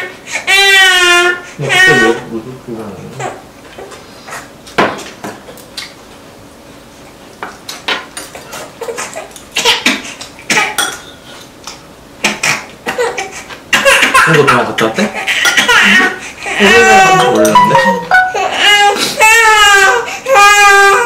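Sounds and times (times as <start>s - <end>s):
utensils clinking against bowls: 10.5s - 11.4s, 16.8s - 18.1s.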